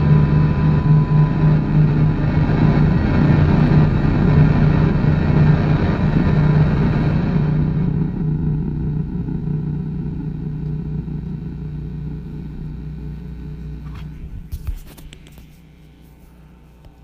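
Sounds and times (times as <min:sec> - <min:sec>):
harsh electronic drone: 0:00.0 - 0:17.0
crackling clicks: 0:13.0 - 0:15.7.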